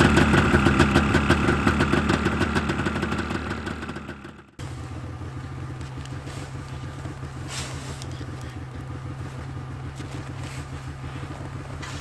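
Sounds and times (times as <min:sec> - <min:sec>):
snowmobile engine idling: 0:00.0 - 0:12.0
shovel scraping packed snow: 0:07.4 - 0:08.2, 0:10.3 - 0:12.0.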